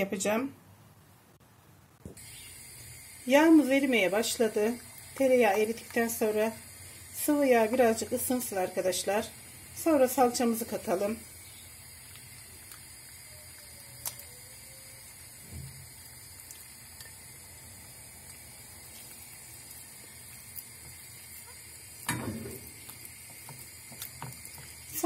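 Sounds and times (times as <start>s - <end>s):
oil sizzling in frying pan: 2.2s - 25.0s.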